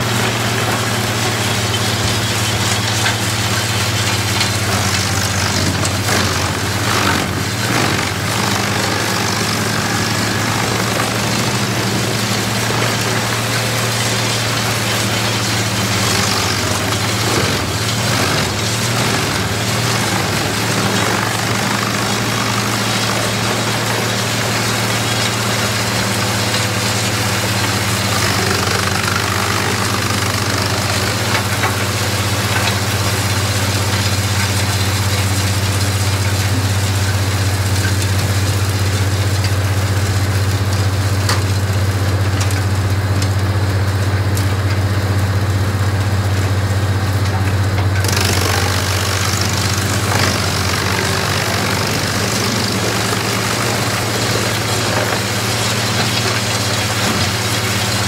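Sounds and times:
logs being chipped: 0.0s - 35.3s, 47.3s - 58.0s
wood chipper engine drone: 0.0s - 58.0s.

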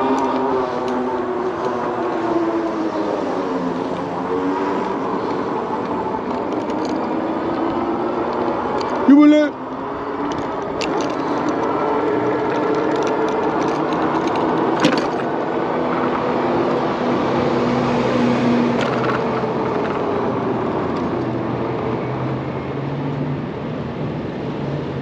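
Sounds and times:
road noise rush: 0.0s - 25.0s
vehicle engines humming: 0.0s - 25.0s.

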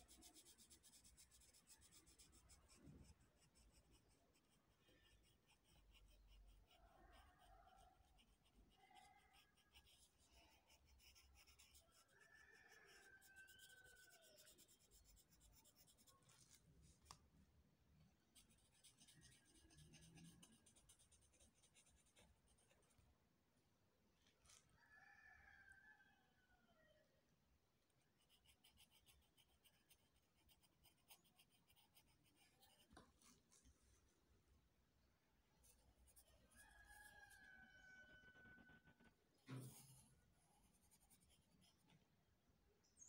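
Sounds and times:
pencil scratching on paper: 0.0s - 17.2s, 18.3s - 22.9s, 28.1s - 33.7s, 35.6s - 41.9s.

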